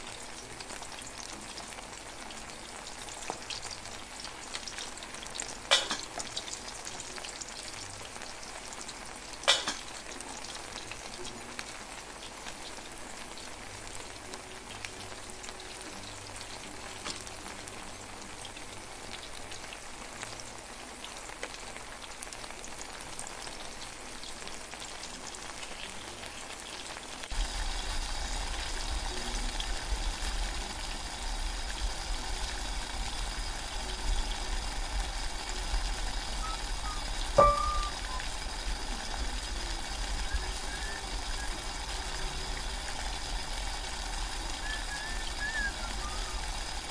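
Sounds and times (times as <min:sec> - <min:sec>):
curry sizzling and simmering: 0:00.0 - 0:46.9
utensil clanking on metal: 0:09.5 - 0:09.8
water rumbling toward a boil: 0:27.3 - 0:46.9.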